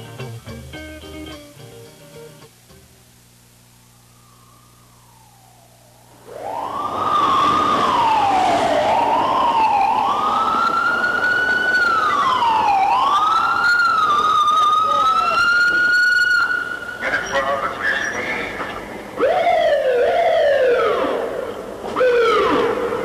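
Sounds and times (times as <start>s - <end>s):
ambulance siren wailing: 4.1s - 17.2s, 19.2s - 23.0s.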